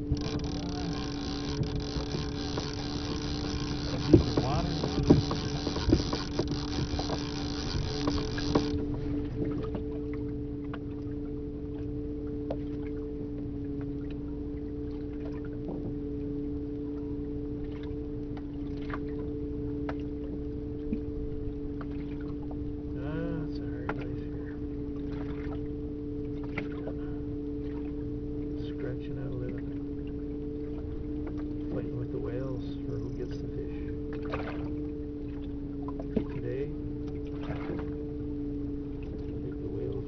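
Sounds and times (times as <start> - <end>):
small clicks: 0.0 - 8.8
boat motor humming: 0.0 - 40.0
low rumble: 0.0 - 40.0.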